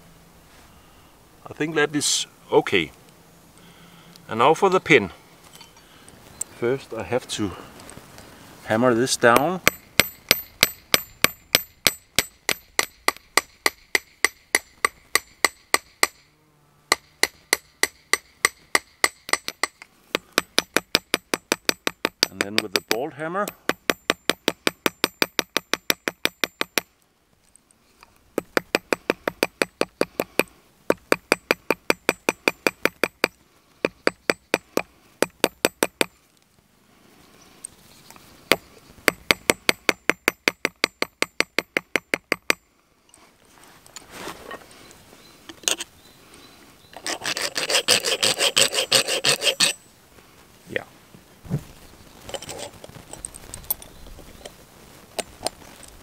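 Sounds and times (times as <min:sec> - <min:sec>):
rasping scrape: 0:47.0 - 0:49.8, 0:52.2 - 0:53.0.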